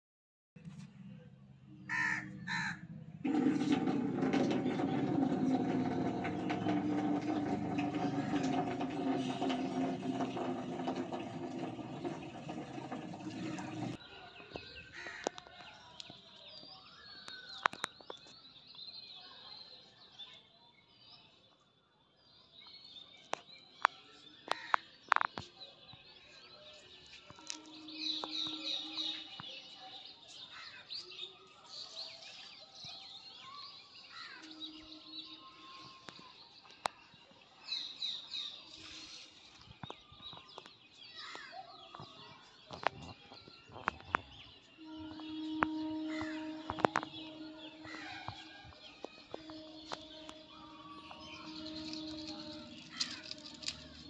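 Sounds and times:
harsh bird calls: 42.7 - 54.0
loud steady droning: 44.8 - 54.0.

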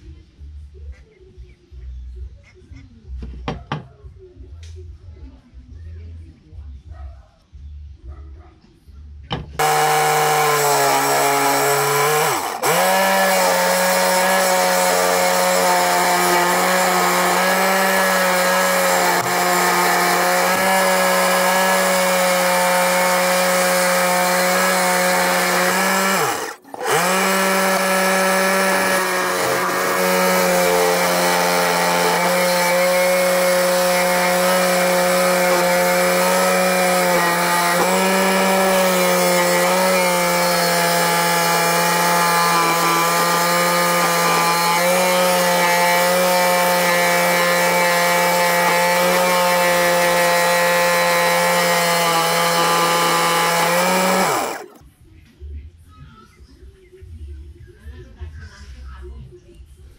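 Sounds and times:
saw blade buzzing through wood: 9.6 - 54.8.

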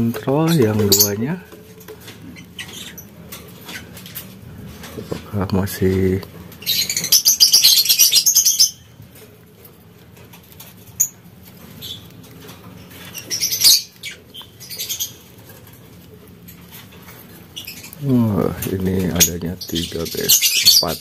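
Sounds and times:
lovebirds chirping and squeaking: 0.0 - 21.0.

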